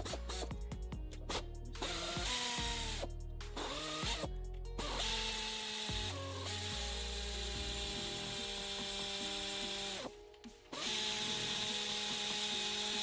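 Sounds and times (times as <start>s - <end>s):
ratchet wrench clicking: 1.2s - 10.1s.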